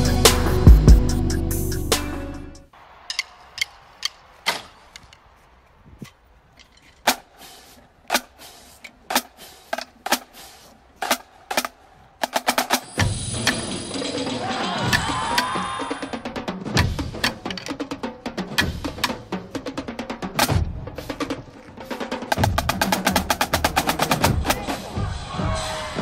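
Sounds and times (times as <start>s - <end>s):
drumstick strikes: 2.9s - 5.2s, 6.0s - 14.1s, 16.7s - 24.6s.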